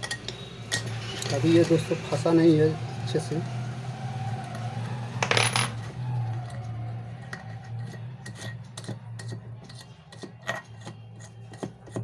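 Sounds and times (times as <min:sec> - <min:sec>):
small metal parts clinking: 0:00.0 - 0:01.9.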